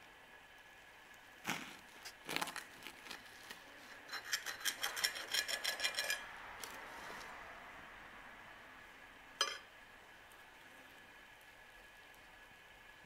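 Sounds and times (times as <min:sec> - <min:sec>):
knife scraping on plate: 0:03.9 - 0:06.3.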